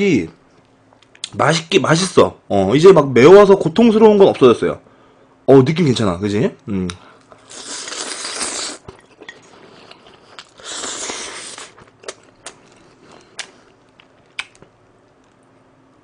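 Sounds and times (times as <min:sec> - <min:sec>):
person slurping noodles: 0:07.5 - 0:11.8.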